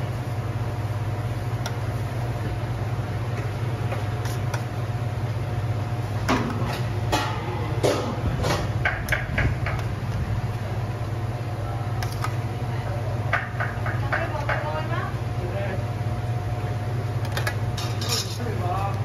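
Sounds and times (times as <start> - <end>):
metal tongs clinking on dishes: 17.8 - 18.4.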